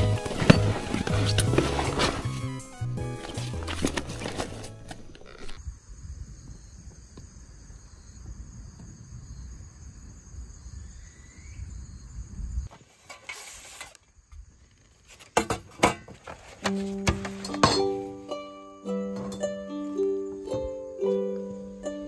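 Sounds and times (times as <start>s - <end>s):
camping gear clicks and knocks: 0.0s - 5.6s, 15.1s - 18.0s
rustle: 3.2s - 17.6s
faint insect drone: 5.1s - 15.2s.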